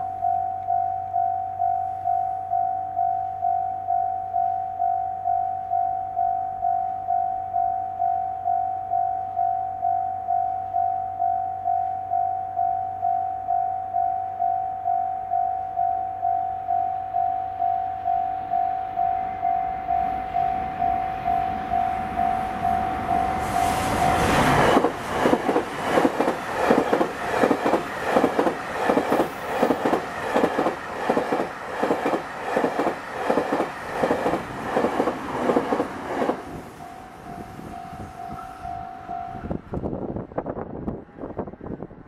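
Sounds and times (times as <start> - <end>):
level crossing alarm ringing: 0.0 - 25.3, 35.7 - 39.6
train wheels clattering: 23.3 - 36.5.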